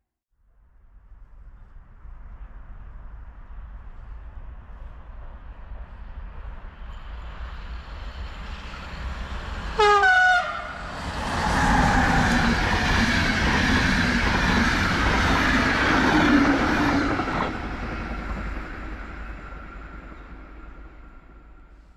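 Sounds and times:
train passing at speed: 0.6s - 21.9s
locomotive horn blast: 9.8s - 10.8s.

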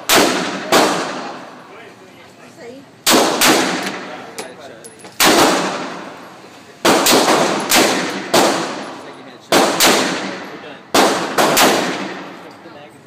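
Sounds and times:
pistol shots echoing indoors: 0.0s - 1.4s, 3.0s - 4.1s, 5.2s - 6.1s, 6.8s - 12.4s.

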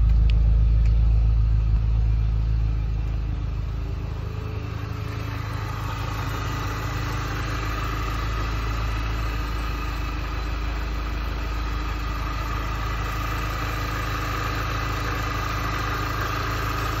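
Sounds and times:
high whine: 0.0s - 12.7s
car engine idling: 0.0s - 17.0s.

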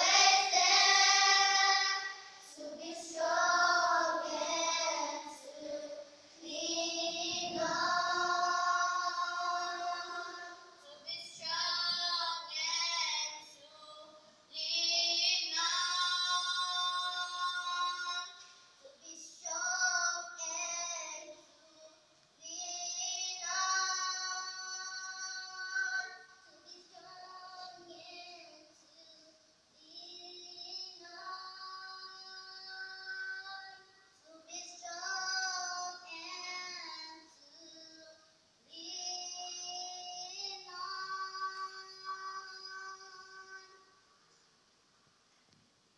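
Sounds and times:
girls singing together: 0.0s - 21.8s, 22.5s - 28.6s, 30.2s - 38.1s, 38.8s - 44.0s.

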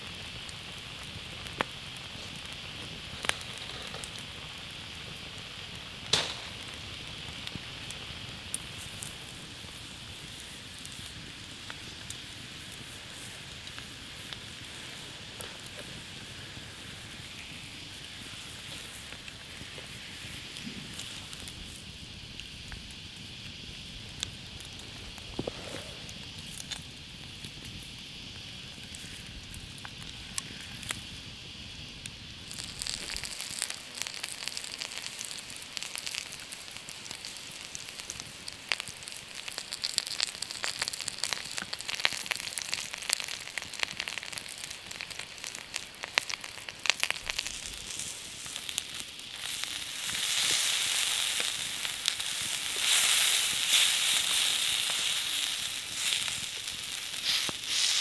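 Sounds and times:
campfire crackling: 0.0s - 58.0s
meat sizzling on hot stone: 0.0s - 58.0s
sharp pops and spits: 22.4s - 27.5s, 32.4s - 58.0s.

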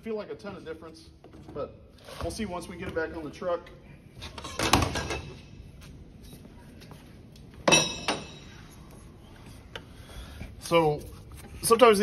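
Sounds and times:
metal tool clanking on metal: 7.6s - 8.4s.

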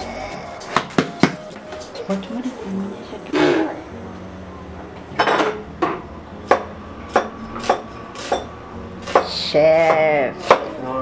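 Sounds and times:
knife chopping on cutting board: 9.0s - 10.8s.

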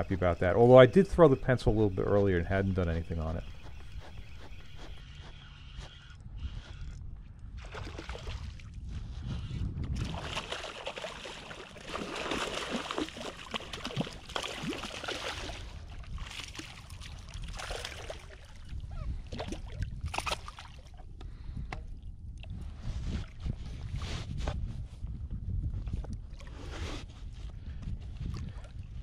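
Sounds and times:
fish splashing at water surface: 10.0s - 18.6s.

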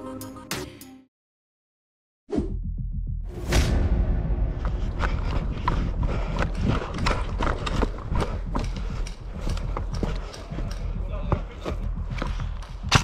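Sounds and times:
steady low rumble: 2.8s - 13.0s
quick irregular footsteps: 4.6s - 13.0s.

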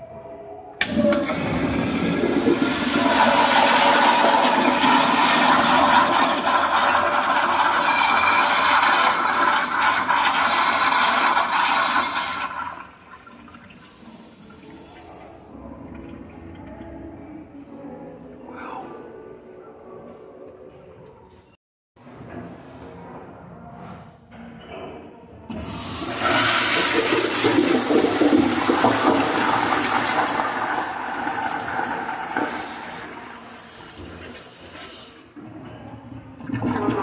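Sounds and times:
toilet flushing: 0.8s - 17.2s, 25.5s - 37.0s.

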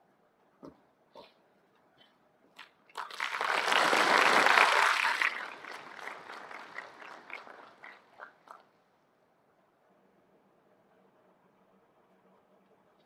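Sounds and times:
audience applauding: 3.0s - 8.6s.

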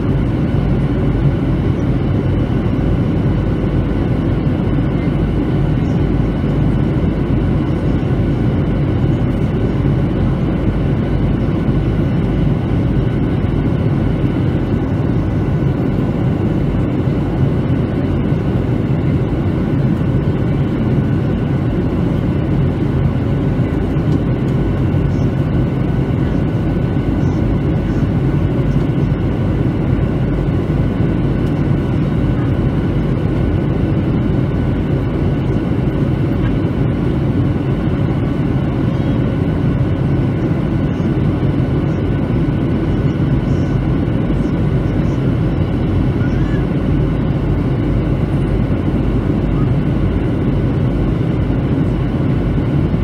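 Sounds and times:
airplane cabin rumble: 0.0s - 53.0s.

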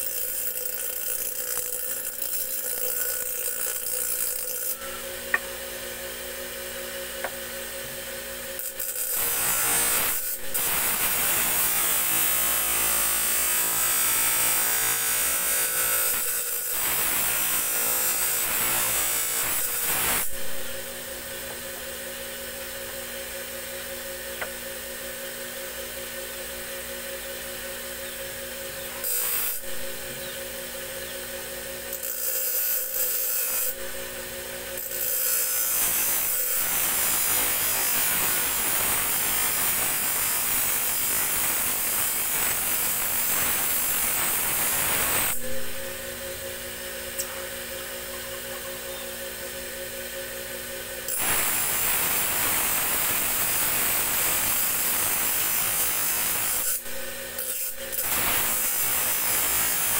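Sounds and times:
blade grinding on wheel: 0.0s - 5.0s
grinding wheel humming: 0.0s - 9.6s.

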